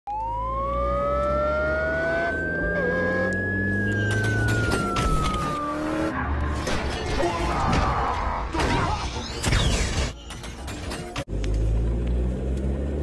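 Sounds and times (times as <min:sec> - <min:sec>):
rising and falling whine: 0:00.1 - 0:06.5
mechanical clicks and clanks: 0:09.2 - 0:11.3.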